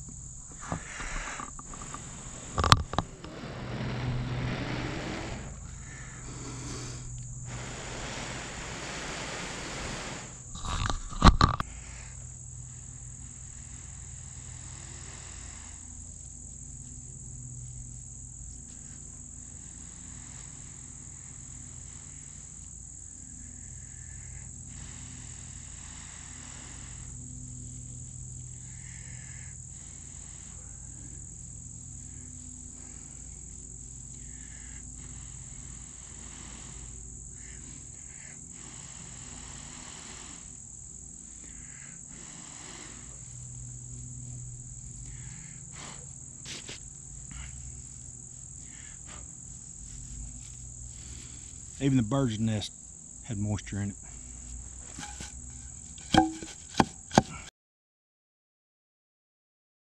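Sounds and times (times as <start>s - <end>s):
breathy blowing: 0.0s - 16.2s, 18.9s - 27.8s, 34.1s - 51.8s, 54.0s - 57.5s
insects chorus: 0.0s - 57.5s.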